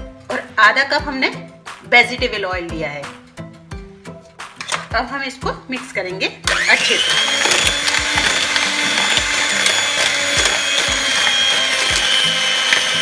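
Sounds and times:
electric hand mixer whining: 6.5 - 13.0.

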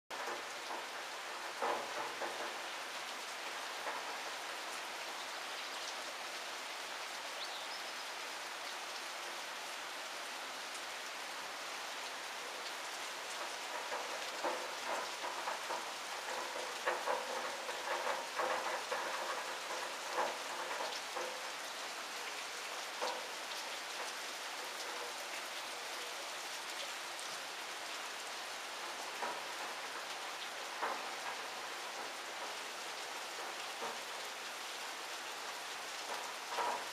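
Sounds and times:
steady rain hiss: 0.1 - 36.9
single raindrops striking close: 12.5 - 26.8, 27.8 - 36.9.

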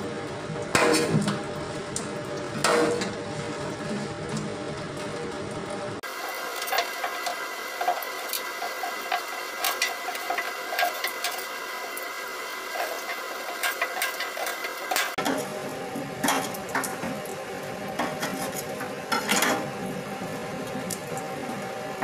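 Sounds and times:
knife scraping and chopping: 0.8 - 1.3, 18.0 - 19.6
tap water running into sink: 6.0 - 22.0.

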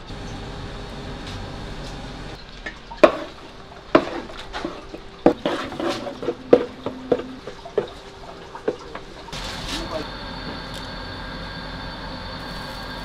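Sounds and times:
rice scraping and stirring: 3.0 - 7.3.

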